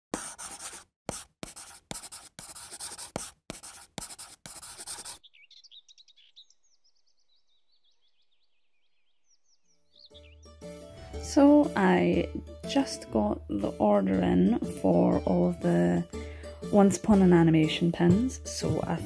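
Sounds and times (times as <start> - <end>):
pen writing on paper: 0.1 - 5.2
high-pitched bird chirps: 4.9 - 10.5.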